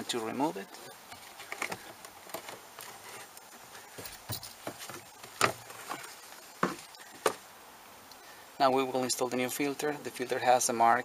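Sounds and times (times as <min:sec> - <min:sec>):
faint rubbing: 0:00.0 - 0:07.4.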